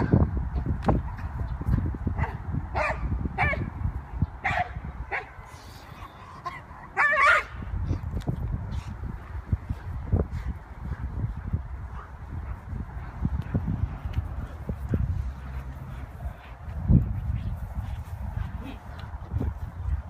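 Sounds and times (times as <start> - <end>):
dog barking and yipping: 6.4 - 7.5.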